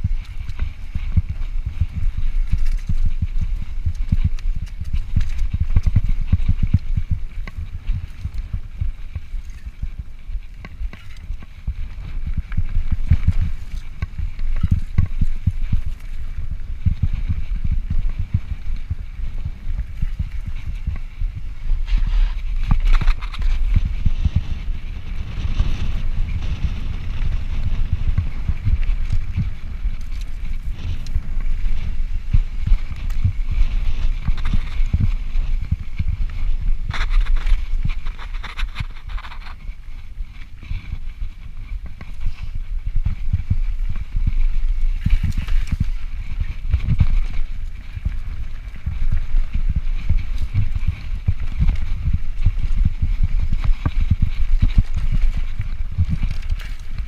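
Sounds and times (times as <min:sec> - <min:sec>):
mountain bike clattering over rocks: 0:09.1 - 0:18.6, 0:42.1 - 0:57.0.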